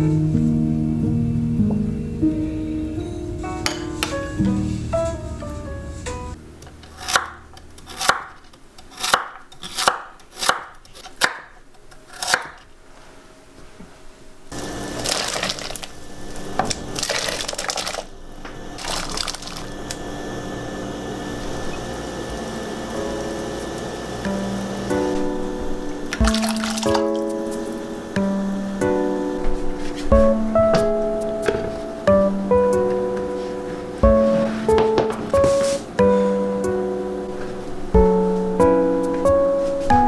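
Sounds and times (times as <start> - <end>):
knife chopping on cutting board: 7.0 - 11.5, 12.1 - 12.6
water boiling and bubbling: 14.5 - 28.2.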